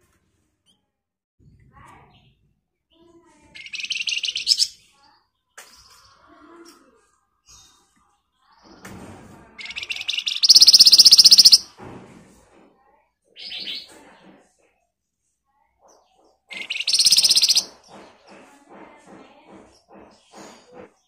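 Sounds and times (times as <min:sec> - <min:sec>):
songbird harsh rattling trills: 0:03.6 - 0:04.8, 0:09.6 - 0:11.7, 0:16.0 - 0:18.5
songbird high call: 0:09.6 - 0:11.6, 0:16.5 - 0:17.7.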